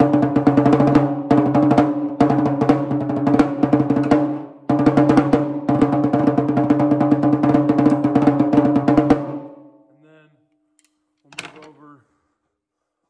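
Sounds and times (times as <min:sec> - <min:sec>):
tom drum rolls: 0:00.0 - 0:09.4.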